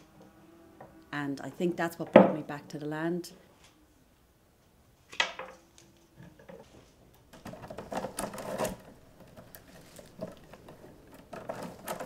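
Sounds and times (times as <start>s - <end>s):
willow rods clicking and rustling: 6.2s - 12.0s.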